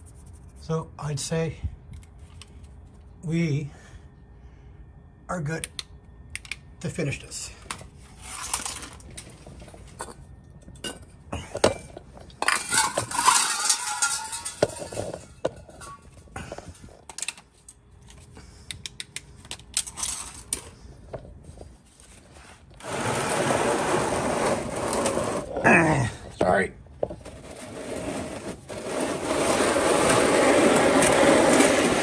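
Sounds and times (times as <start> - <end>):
tools clinking and knocking: 9.9 - 17.8.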